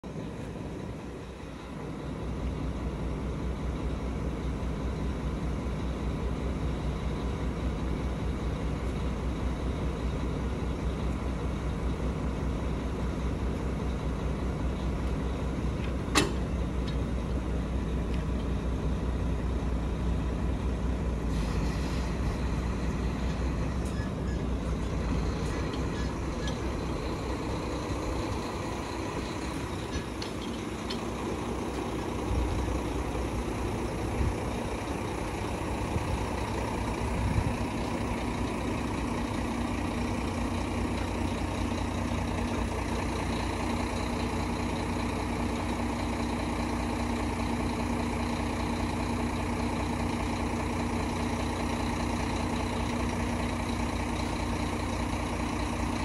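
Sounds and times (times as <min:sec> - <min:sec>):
truck engine low hum: 0:00.0 - 0:56.0
thin hydraulic whine: 0:21.2 - 0:35.6.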